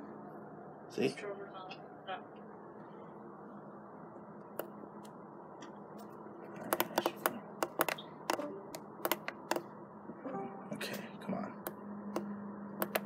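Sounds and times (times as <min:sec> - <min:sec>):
sharp clicks and taps: 0:06.7 - 0:09.7, 0:11.6 - 0:13.0.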